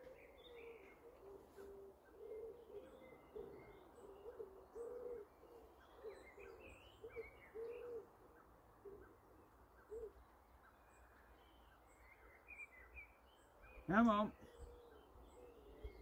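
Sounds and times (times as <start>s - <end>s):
pigeon cooing: 0.0s - 8.2s
small birds chirping: 0.0s - 16.0s.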